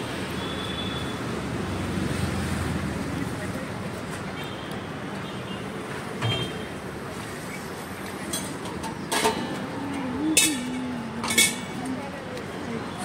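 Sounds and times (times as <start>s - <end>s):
street noise: 0.0s - 13.0s
metal utensil clanking on griddle: 8.3s - 9.7s, 10.3s - 11.8s.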